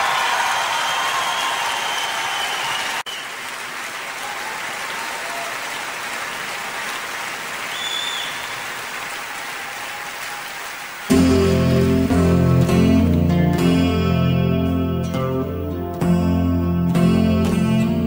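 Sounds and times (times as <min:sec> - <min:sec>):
audience applauding: 0:00.0 - 0:12.6
acoustic guitar music: 0:11.1 - 0:18.0.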